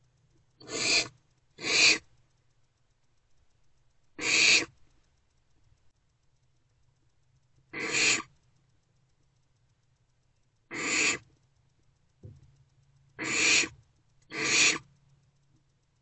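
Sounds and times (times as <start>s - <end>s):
owlets hissing: 0.6s - 2.0s, 14.3s - 14.8s
faint short knock: 12.2s - 12.5s.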